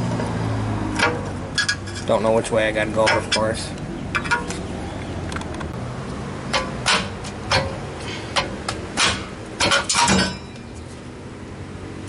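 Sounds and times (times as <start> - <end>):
metal brake rotor clanking: 0.9 - 4.7, 6.4 - 10.8.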